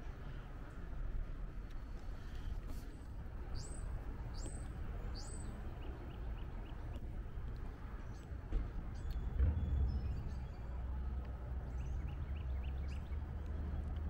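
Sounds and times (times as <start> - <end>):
low background rumble: 0.0 - 14.0.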